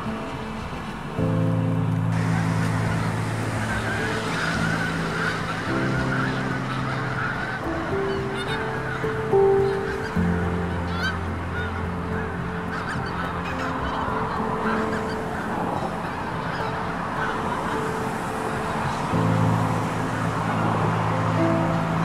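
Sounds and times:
soft music with low held notes: 0.0 - 22.0
geese honking: 2.1 - 22.0.

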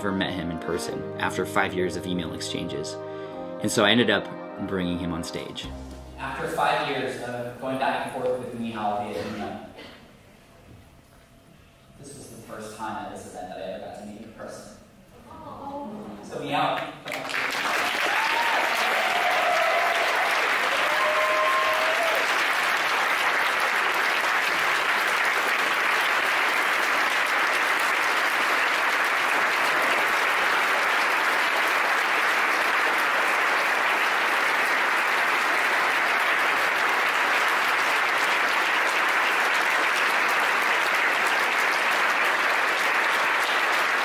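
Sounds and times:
large audience applauding: 17.0 - 44.0.

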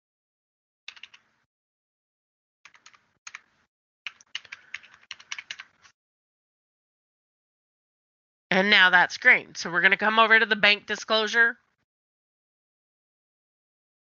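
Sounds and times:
typing on keyboard: 0.9 - 1.3, 2.7 - 3.5, 4.1 - 5.8.

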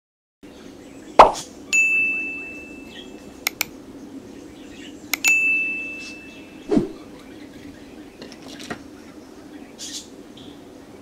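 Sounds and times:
bright bell ding: 1.8 - 3.0, 5.2 - 6.5
mouse clicks: 3.5 - 3.7.

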